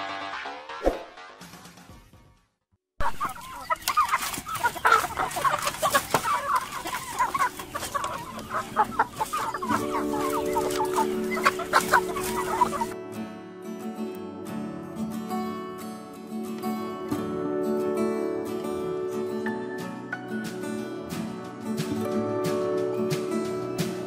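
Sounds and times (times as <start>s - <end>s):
chickens clucking: 3.0s - 13.0s
chickens pecking clicks: 3.3s - 12.9s
music with held notes: 3.8s - 24.0s.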